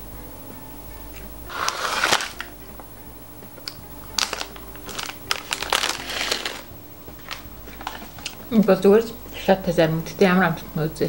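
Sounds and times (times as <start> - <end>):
plastic wrapper crackling: 1.5 - 2.5, 4.1 - 8.4.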